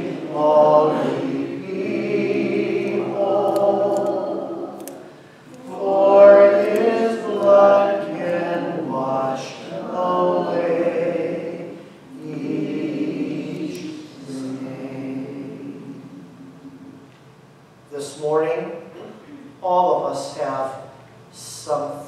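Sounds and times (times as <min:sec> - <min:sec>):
group singing a hymn: 0:00.0 - 0:17.4.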